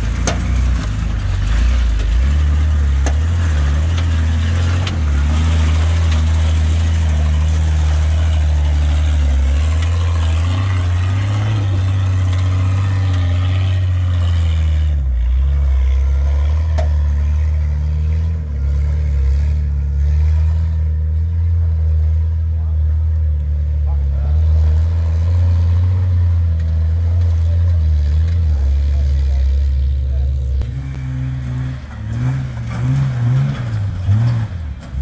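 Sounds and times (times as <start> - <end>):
off-road vehicle engine revving: 0.0 - 35.0.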